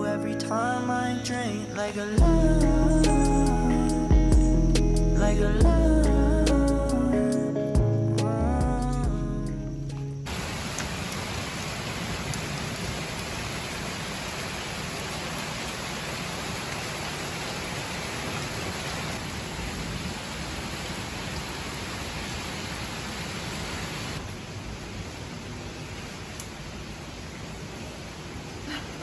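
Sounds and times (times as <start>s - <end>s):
rain falling on lawn: 10.2s - 29.0s.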